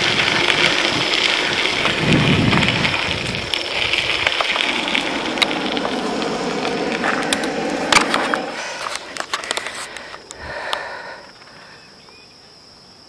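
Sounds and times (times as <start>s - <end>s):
wind on microphone: 0.0s - 8.6s
tyres crunching on gravel: 0.0s - 10.9s.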